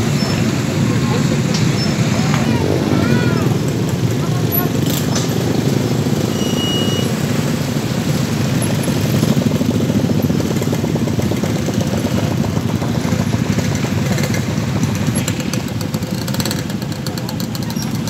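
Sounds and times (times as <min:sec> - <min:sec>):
motorcycle engine idling: 0:08.5 - 0:18.0.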